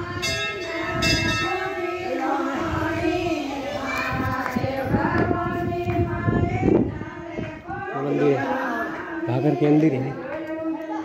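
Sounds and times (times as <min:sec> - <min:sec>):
temple bell ringing: 0:00.0 - 0:02.3
devotional singing: 0:00.0 - 0:11.0.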